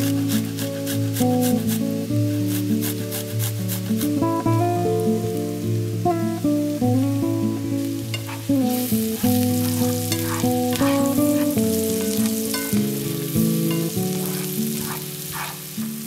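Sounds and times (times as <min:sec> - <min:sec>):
onion sizzling in frying pan: 0:00.0 - 0:16.0
background music plucked notes: 0:04.2 - 0:16.0
spatula scraping pan: 0:08.1 - 0:16.0.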